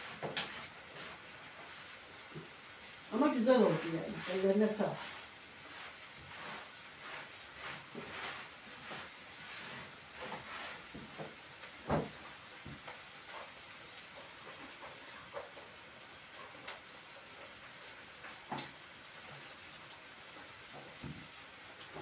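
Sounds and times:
wet cloth rubbing on wood: 0.0s - 13.7s.

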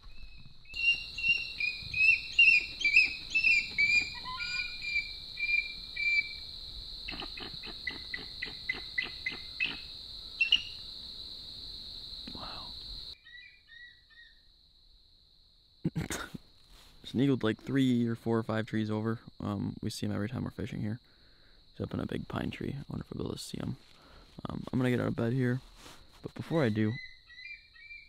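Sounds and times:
eagle calling: 0.0s - 6.4s, 7.1s - 10.8s, 13.2s - 14.4s, 26.8s - 28.0s
high-pitched insect drone: 0.2s - 14.5s.

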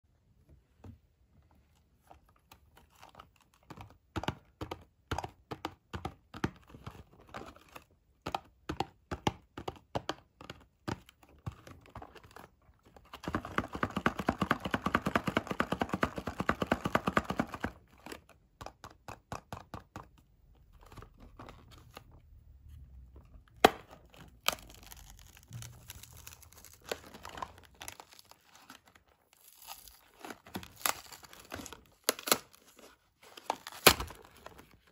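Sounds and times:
fingers tapping on cardboard: 3.7s - 6.9s, 8.2s - 11.6s, 13.2s - 17.8s, 18.6s - 20.2s
cardboard box rustling: 24.1s - 34.9s
cardboard flap tearing: 24.4s - 32.8s.

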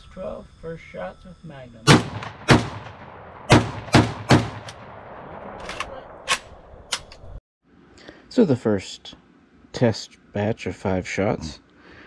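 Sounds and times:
shotgun shots with ringing echo: 1.9s - 6.6s.

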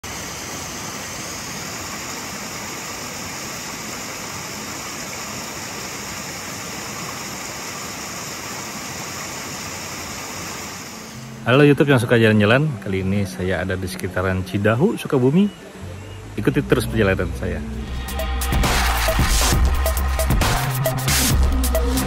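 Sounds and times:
waterfall splashing: 0.0s - 12.0s.

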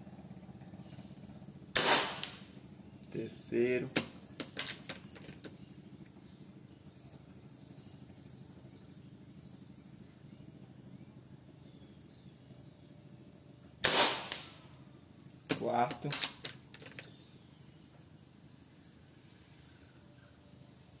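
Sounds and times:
low steady background noise: 0.0s - 21.0s
insect chirps: 0.6s - 3.1s, 14.5s - 21.0s
air rifle clicks: 1.8s - 2.4s, 3.9s - 5.6s, 13.8s - 14.6s, 15.5s - 17.2s.

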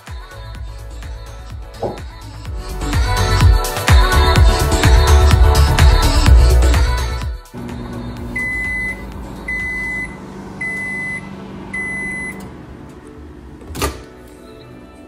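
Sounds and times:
microwave humming: 7.6s - 14.2s
high microwave beeps: 8.3s - 12.6s.

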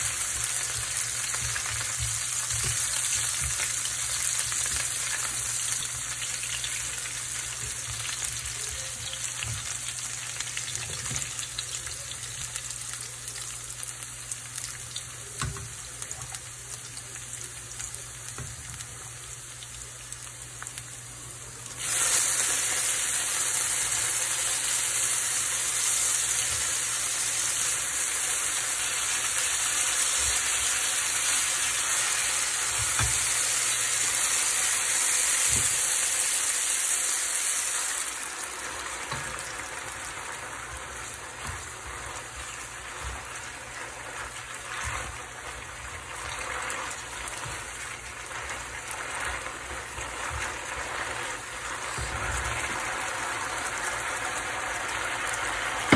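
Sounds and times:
tongs stirring pasta: 0.0s - 12.8s, 38.0s - 55.7s
pasta sizzling in oil: 0.0s - 55.9s.

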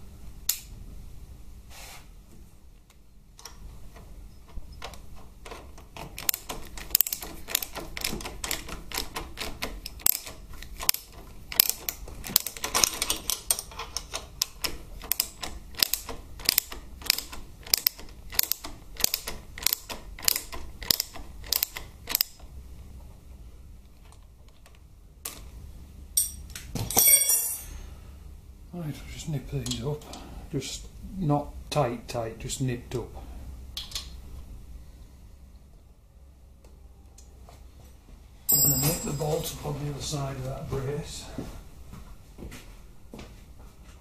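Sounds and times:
socket ratchet clicking: 5.5s - 22.4s.

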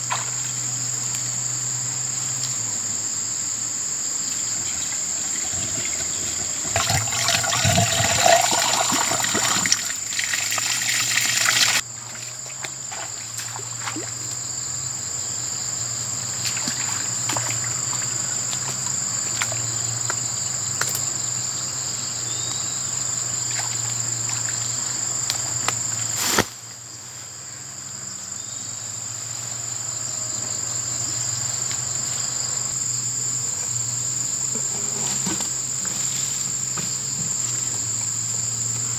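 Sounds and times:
high-pitched insect drone: 0.0s - 26.4s, 27.3s - 38.9s
water pouring and splashing: 4.8s - 14.2s.

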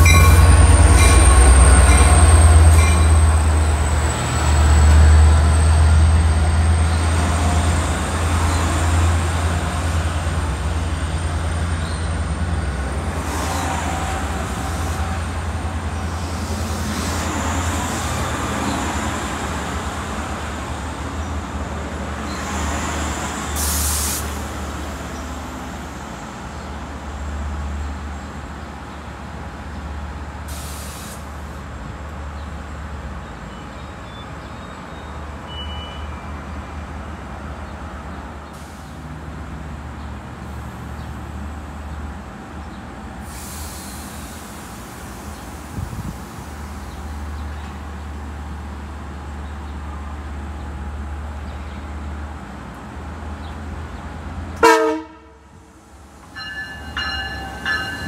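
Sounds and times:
locomotive engine low rumble: 0.0s - 22.4s
air brake hisses: 23.6s - 24.4s, 30.5s - 31.4s, 43.2s - 46.4s.

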